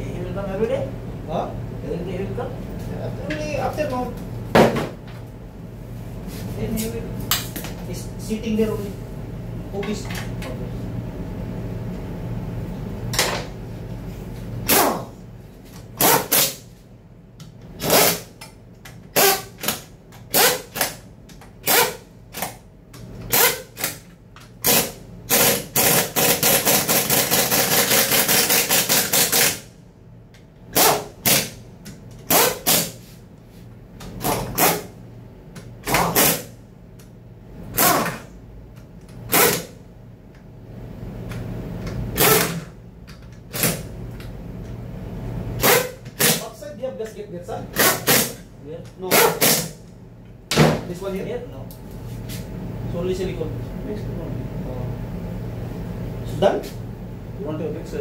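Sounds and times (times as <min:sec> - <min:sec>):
low steady hum: 0:00.0 - 0:58.0
pneumatic impact wrench hammering: 0:14.6 - 0:15.1, 0:16.0 - 0:16.6, 0:17.8 - 0:18.4, 0:19.1 - 0:21.0, 0:21.6 - 0:22.6, 0:23.2 - 0:29.7, 0:30.7 - 0:31.6, 0:32.2 - 0:33.0, 0:34.1 - 0:34.9, 0:35.8 - 0:36.5, 0:37.7 - 0:38.3, 0:39.3 - 0:39.8, 0:42.1 - 0:42.8, 0:43.5 - 0:43.9, 0:45.6 - 0:46.4, 0:47.7 - 0:48.4, 0:49.1 - 0:49.8.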